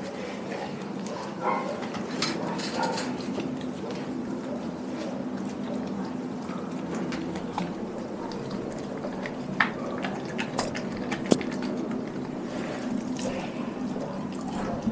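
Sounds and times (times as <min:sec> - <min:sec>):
dog licking and smacking: 0:03.4 - 0:14.9.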